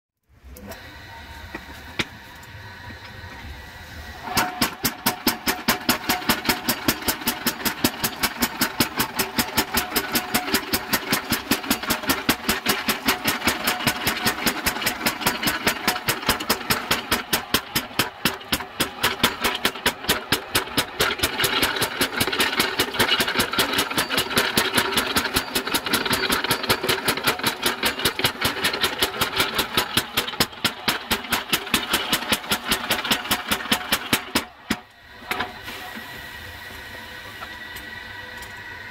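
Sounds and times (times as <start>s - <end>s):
power hammer motor running: 4.2s - 34.4s.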